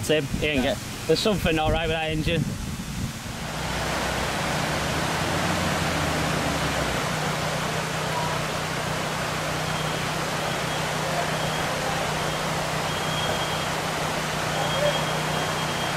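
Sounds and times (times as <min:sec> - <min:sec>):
stream rushing over rocks: 0:00.0 - 0:15.9
car engine humming: 0:02.6 - 0:15.9.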